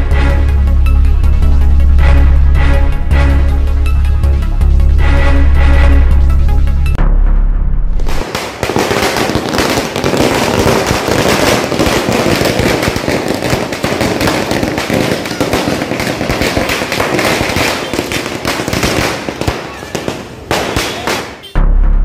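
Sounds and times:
firecrackers banging: 8.0s - 21.6s.

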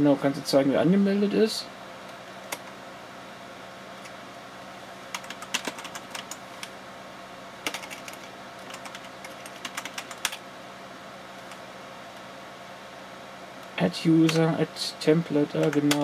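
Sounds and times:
typing on computer keyboard: 5.1s - 6.4s, 7.6s - 10.4s.

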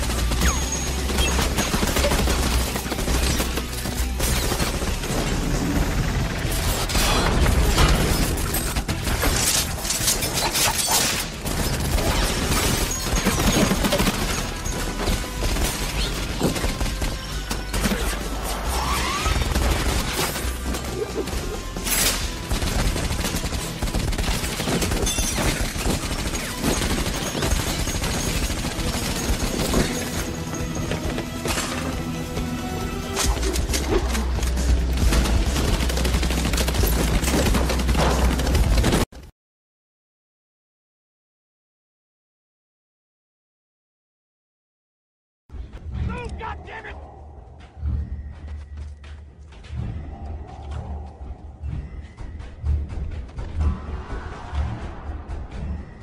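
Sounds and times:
rapid gunfire: 0.0s - 9.5s, 11.0s - 18.3s, 19.2s - 30.3s, 34.9s - 39.1s
dramatic score music: 0.0s - 39.0s, 45.6s - 56.0s.

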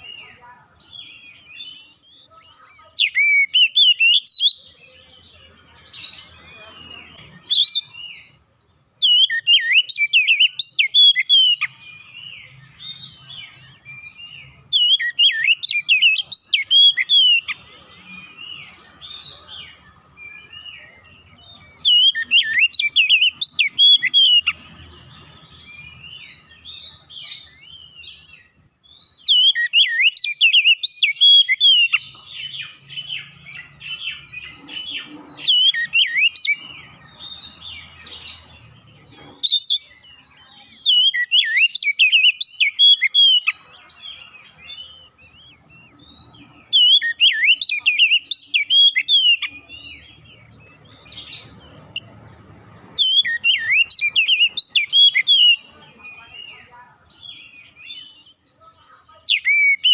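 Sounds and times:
bird singing whistled phrases: 0.0s - 4.7s, 9.0s - 11.7s, 14.0s - 17.6s, 21.8s - 24.6s, 29.0s - 32.7s, 35.4s - 36.6s, 40.8s - 43.6s, 46.6s - 49.6s, 53.0s - 58.2s, 59.3s - 59.9s
bird twittering: 14.0s - 19.4s, 21.8s - 24.6s, 29.0s - 39.9s, 40.8s - 58.4s.

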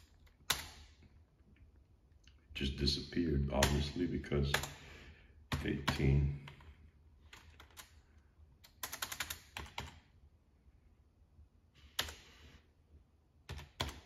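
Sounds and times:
computer keyboard typing: 0.0s - 0.9s, 3.6s - 4.8s, 5.5s - 8.0s, 8.6s - 10.1s, 11.9s - 12.3s, 13.4s - 14.0s.

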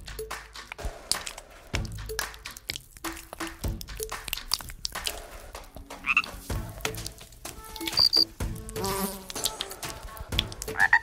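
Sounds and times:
high chirps and clicks: 0.1s - 5.2s, 6.9s - 8.3s.

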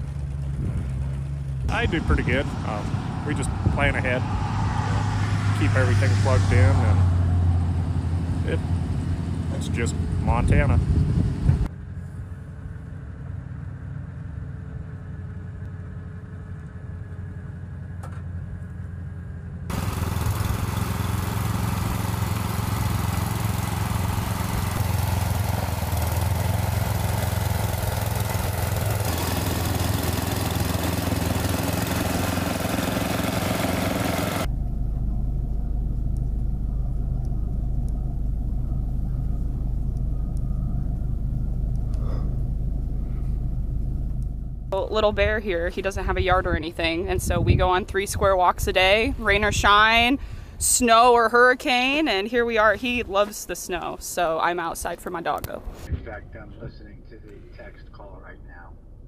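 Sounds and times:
low rumble: 0.0s - 19.7s, 34.4s - 50.6s, 55.6s - 59.0s
snowblower running: 8.0s - 45.0s
faint low hum: 34.5s - 46.5s, 55.9s - 59.0s.

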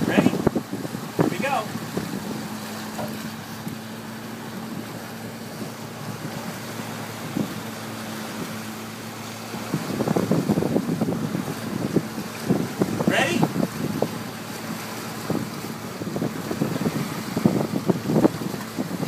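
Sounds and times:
boat engine droning: 0.0s - 19.0s
sea noise: 0.0s - 19.0s
wind gusts on microphone: 0.0s - 19.0s.

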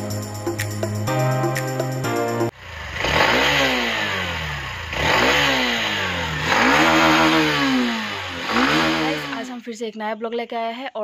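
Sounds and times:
motorcycle engine revving: 2.5s - 9.6s.

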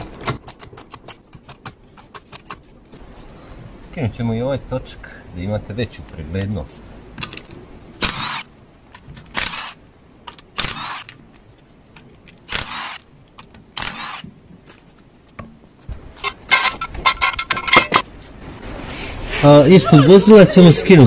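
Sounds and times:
metallic clattering and clicks: 16.2s - 18.1s.

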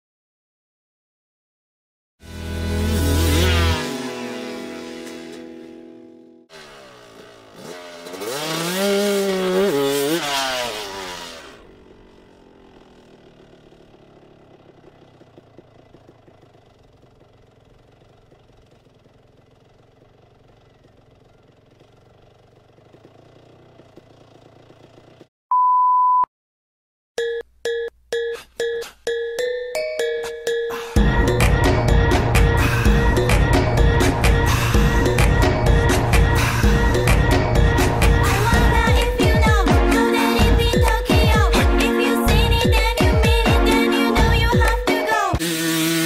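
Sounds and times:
dirt bike engine revving: 2.2s - 25.3s, 45.2s - 46.0s
test-pattern beep: 27.2s - 30.8s.

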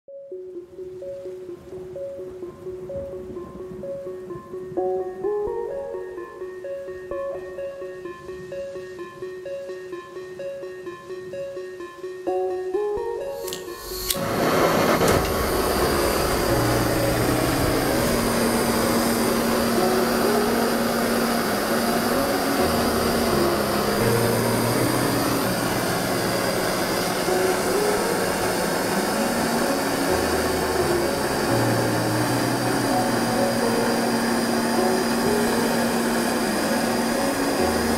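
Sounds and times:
lighter click: 13.4s - 14.3s
torch flame hissing: 13.4s - 37.9s.

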